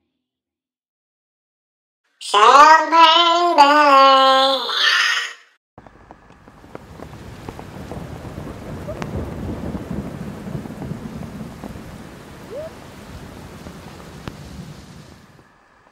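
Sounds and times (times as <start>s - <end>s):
low rumble: 5.8s - 15.9s
steady rain: 5.8s - 15.9s.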